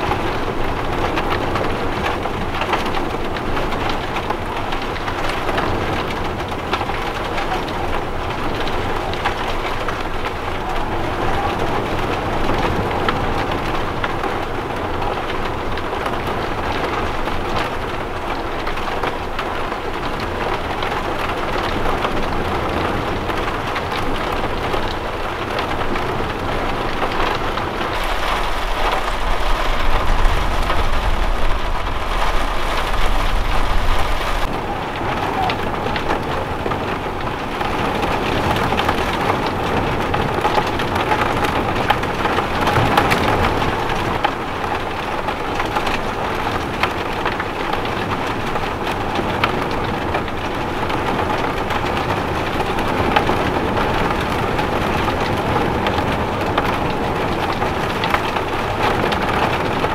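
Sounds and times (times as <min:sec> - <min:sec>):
heavy rain: 0:00.0 - 0:59.9
strong wind: 0:00.0 - 0:59.9
deep rumble: 0:25.5 - 0:40.2.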